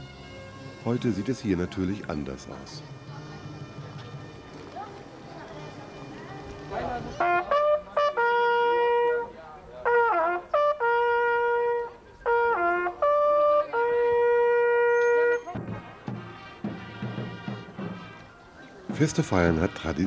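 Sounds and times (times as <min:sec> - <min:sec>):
brass post horn call: 0:07.1 - 0:18.3.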